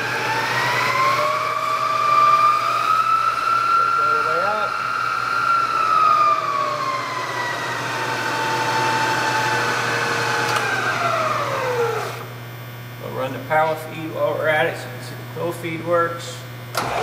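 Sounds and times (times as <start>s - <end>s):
milling machine spindle whine: 0.0s - 12.4s.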